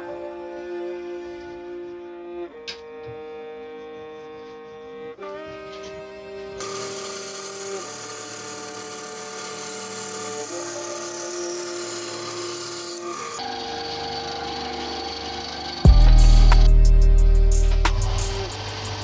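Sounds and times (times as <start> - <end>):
soft background music: 0.0 - 19.0
bandsaw cutting wood: 4.2 - 19.0.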